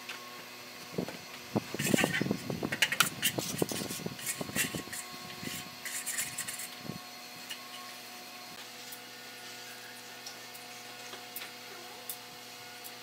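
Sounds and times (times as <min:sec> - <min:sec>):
trowel scraping wet render: 0:03.0 - 0:06.8.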